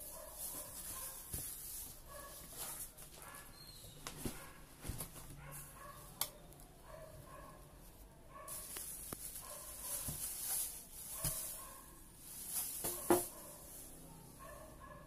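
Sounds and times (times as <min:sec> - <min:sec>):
plastic wrap crinkling: 0:00.0 - 0:03.4, 0:08.5 - 0:14.2
dog yipping and barking: 0:11.1 - 0:12.0, 0:14.4 - 0:15.0.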